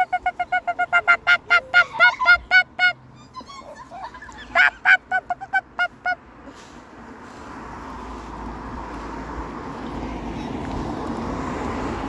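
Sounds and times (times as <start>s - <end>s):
waterfowl honking: 0.0s - 3.0s.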